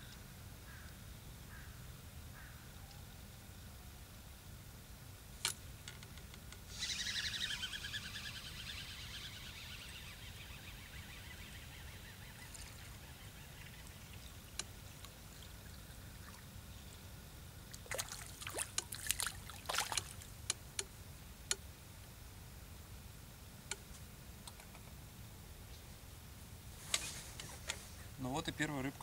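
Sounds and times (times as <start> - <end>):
fish splashing at water surface: 17.8 - 20.3.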